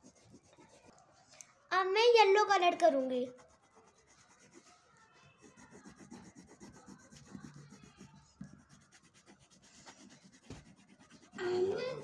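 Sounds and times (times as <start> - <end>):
crayon scratching on paper: 0.0 - 1.0, 3.1 - 12.0.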